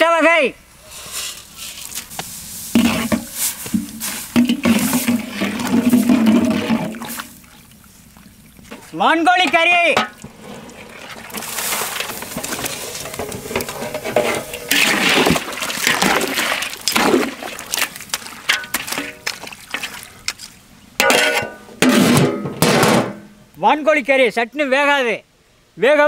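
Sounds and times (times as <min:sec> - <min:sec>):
metal ladle clattering in pot: 0:02.8 - 0:07.4, 0:08.7 - 0:19.9, 0:21.0 - 0:23.2.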